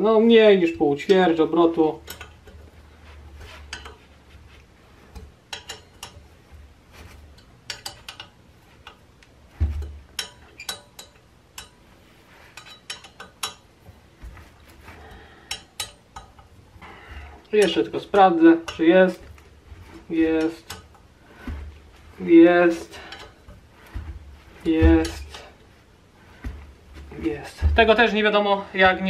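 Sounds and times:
dull thump: 9.5 - 10.1, 23.0 - 25.6, 26.2 - 28.1.

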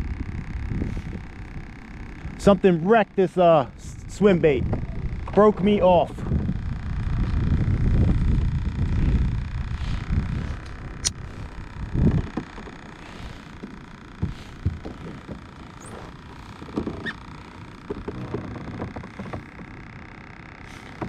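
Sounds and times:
wind buffeting microphone: 0.0 - 2.4, 3.8 - 12.6.

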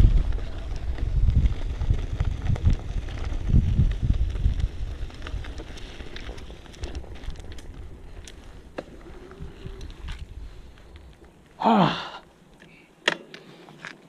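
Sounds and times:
wind buffeting microphone: 0.0 - 11.2
tyres crackling over gravel: 0.0 - 14.0.

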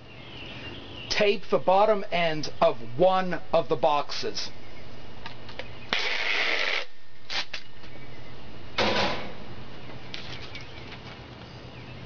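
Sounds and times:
packing tape pulled off roll: 5.9 - 7.7.

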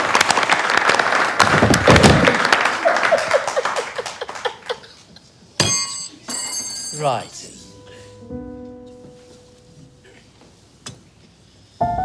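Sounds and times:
audience applause: 0.0 - 5.1
man laughing: 2.8 - 5.3.

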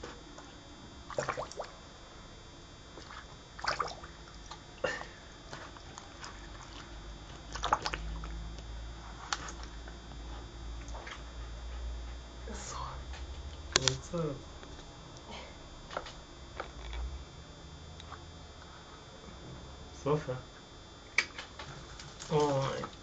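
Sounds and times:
dog blowing bubbles in water: 1.1 - 1.7, 3.0 - 4.1, 7.5 - 8.4.

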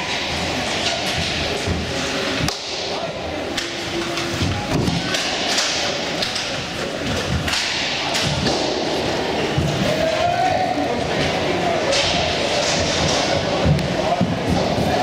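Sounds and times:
roller hockey knocks and thumps: 11.9 - 15.0.

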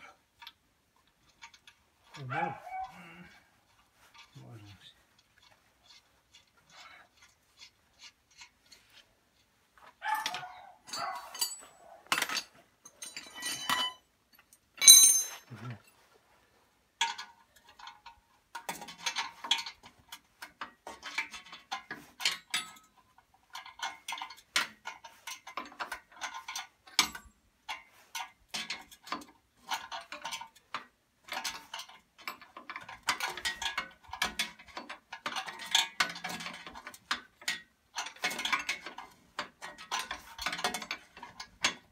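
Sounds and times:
metal tools clinking: 10.2 - 16.0
metal on metal clang: 10.9 - 14.0, 14.8 - 15.5.

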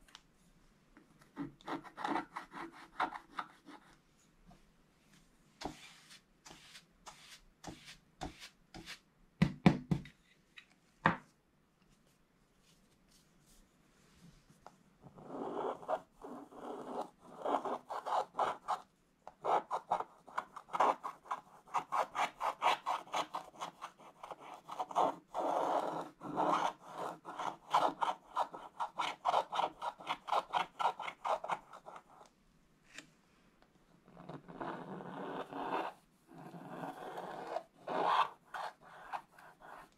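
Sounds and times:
knocks and taps: 9.4 - 10.2
stylus scratching paper: 15.2 - 18.8, 19.4 - 32.2, 34.6 - 39.9.

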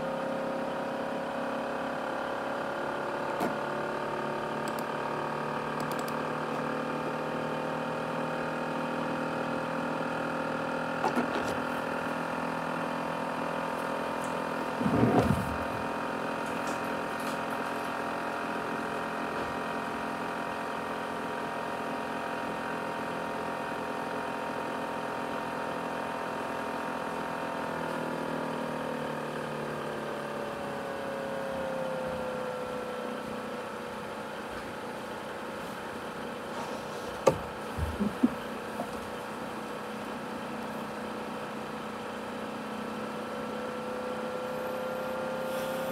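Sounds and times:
laptop cooling fan whining: 0.0 - 45.9
sharp clicks: 5.8 - 6.2.

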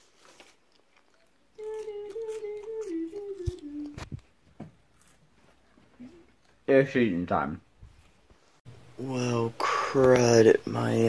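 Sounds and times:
man humming: 1.6 - 4.0.

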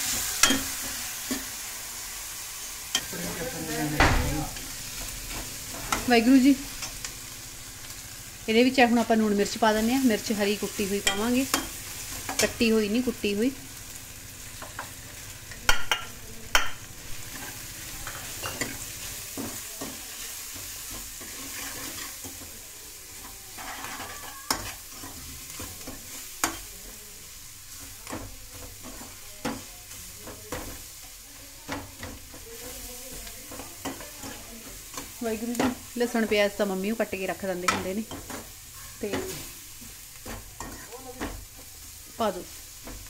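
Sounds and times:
food sizzling in oil: 0.0 - 43.0
metal ladle scraping pan: 21.2 - 22.2, 23.6 - 25.2.

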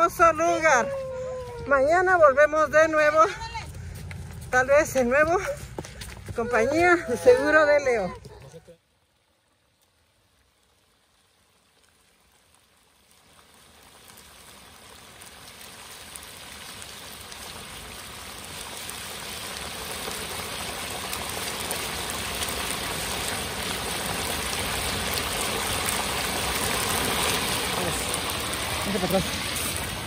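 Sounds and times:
oil sizzling and bubbling: 8.8 - 30.0.

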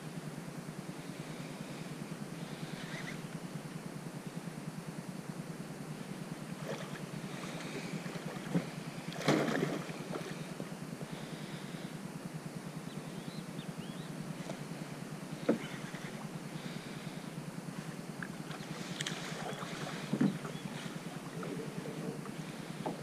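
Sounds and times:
wind and water rumble: 6.0 - 12.8, 14.3 - 23.0.

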